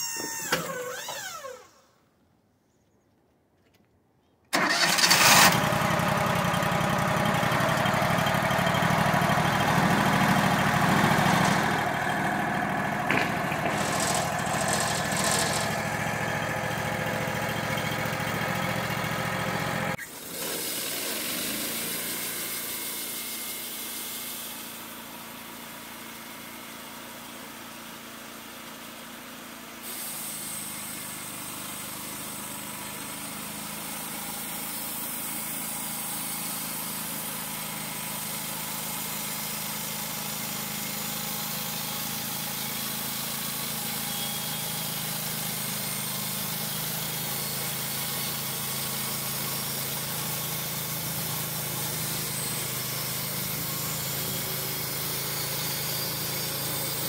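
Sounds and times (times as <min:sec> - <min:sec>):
sawmill running: 0:00.0 - 0:01.8, 0:04.5 - 0:57.0
whir falling in pitch: 0:00.0 - 0:01.9.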